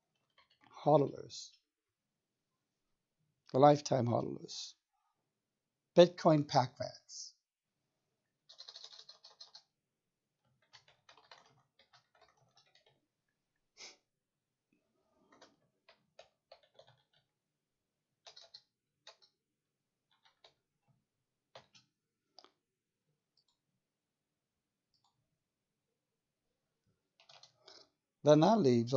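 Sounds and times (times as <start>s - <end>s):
faint keyboard typing: 8.5s - 9.7s, 10.5s - 13.0s, 15.2s - 17.3s, 18.2s - 19.4s, 20.1s - 20.6s, 21.5s - 22.5s, 27.2s - 27.9s.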